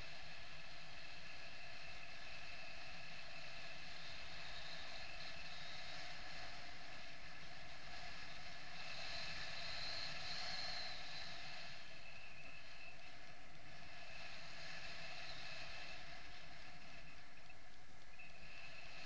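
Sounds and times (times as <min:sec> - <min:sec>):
whistling tones: 0:09.2 - 0:14.2, 0:14.9 - 0:19.0.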